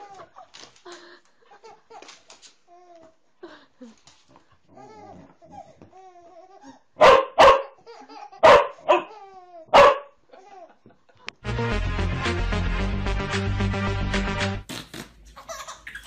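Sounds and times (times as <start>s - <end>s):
dog barking: 7.0s - 7.8s, 8.4s - 9.1s, 9.7s - 10.2s.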